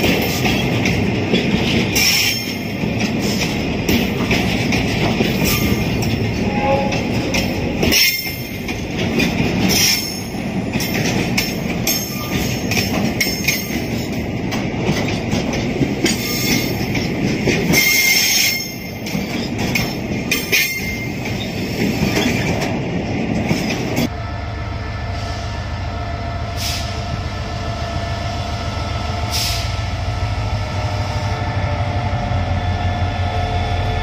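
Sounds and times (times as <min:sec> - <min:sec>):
wheels squealing and clacking: 0:00.0 - 0:14.1, 0:14.9 - 0:22.7
train wheels rumbling on rail: 0:00.0 - 0:34.0.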